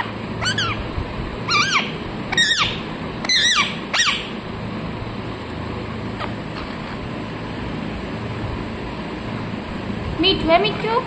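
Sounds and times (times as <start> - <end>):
parakeet squawking: 0.0 - 0.9, 1.5 - 4.3.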